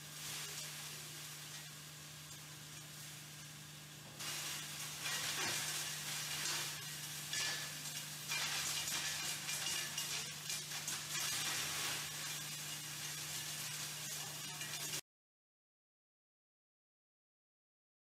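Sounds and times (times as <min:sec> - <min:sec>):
charcoal crackling being crushed: 0:04.2 - 0:15.0.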